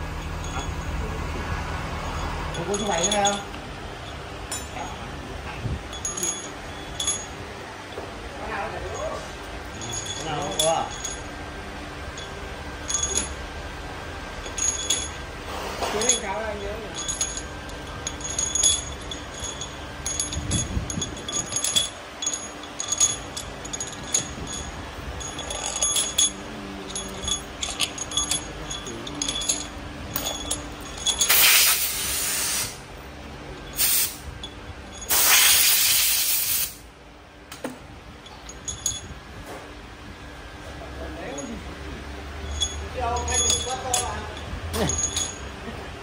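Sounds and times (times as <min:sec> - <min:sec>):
metal tools clinking and tapping: 0:00.0 - 0:01.2, 0:01.9 - 0:11.3, 0:12.1 - 0:13.4, 0:14.4 - 0:15.2, 0:15.8 - 0:32.6, 0:33.5 - 0:36.7, 0:37.5 - 0:39.6, 0:41.1 - 0:41.6, 0:42.4 - 0:45.8
loud hissing bursts: 0:31.3 - 0:32.8, 0:35.1 - 0:36.8.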